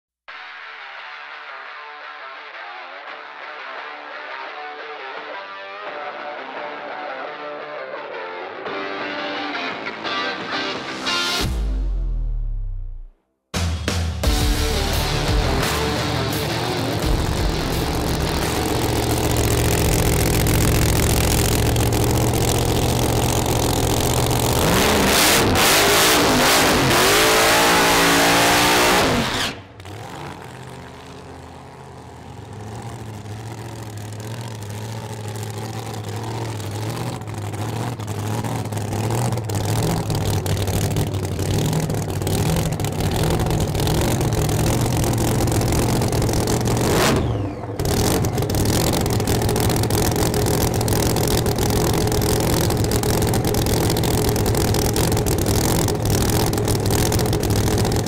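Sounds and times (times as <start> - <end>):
engine idling: 14.3 - 58.0
drag racing engine revving: 14.5 - 58.0.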